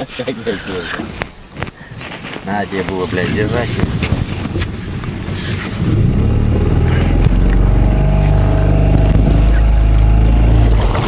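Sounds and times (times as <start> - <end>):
outboard motor running: 5.1 - 11.0.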